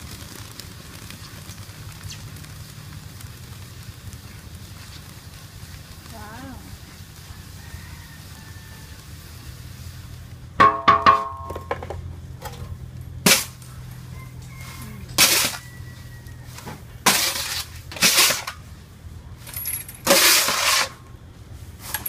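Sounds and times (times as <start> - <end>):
rice and sand shaken through sieve: 0.0 - 10.3, 14.2 - 18.6, 20.0 - 22.0
metal paddle clanging on wok: 10.6 - 11.8.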